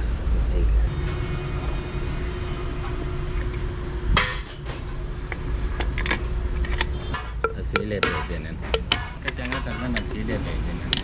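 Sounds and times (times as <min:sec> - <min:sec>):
sharp metal clank: 0:04.1 - 0:04.9, 0:07.0 - 0:10.0
metal tools clinking: 0:05.7 - 0:10.3.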